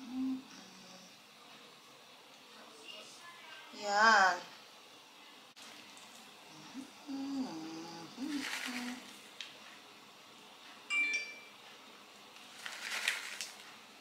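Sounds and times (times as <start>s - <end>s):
plastic bag rustling: 8.1s - 9.3s, 12.4s - 13.8s.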